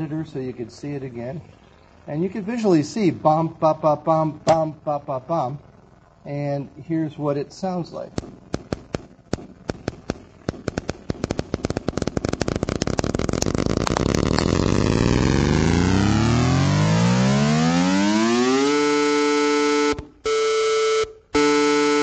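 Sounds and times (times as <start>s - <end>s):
tapped clicks blurring into tones: 4.1s - 4.9s.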